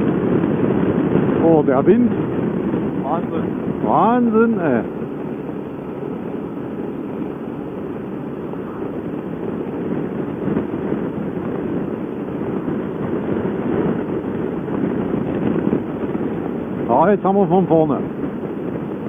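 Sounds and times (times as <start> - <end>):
road noise: 0.0 - 19.0
wind rush on microphone: 0.0 - 19.0.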